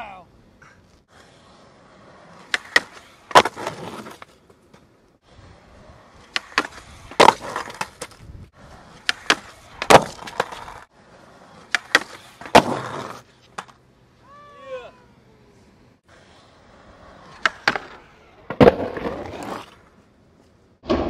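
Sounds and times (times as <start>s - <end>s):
skateboard scraping or rolling: 0.6s - 21.0s
skateboard clacking on concrete: 2.4s - 4.8s, 6.3s - 8.3s, 9.0s - 10.9s, 11.6s - 13.8s.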